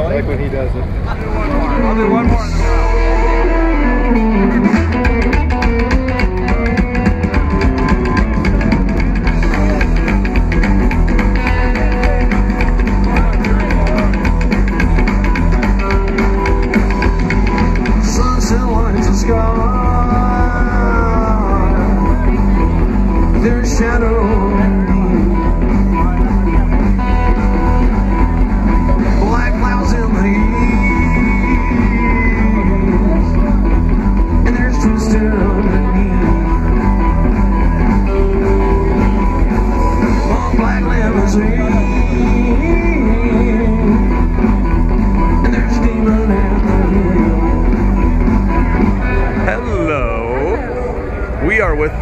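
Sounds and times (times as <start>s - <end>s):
live rock band with singer: 0.8s - 52.0s.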